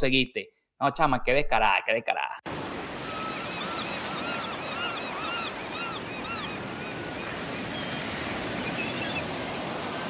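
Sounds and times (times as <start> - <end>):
waves washing: 2.5 - 10.0
birds calling: 2.6 - 10.0.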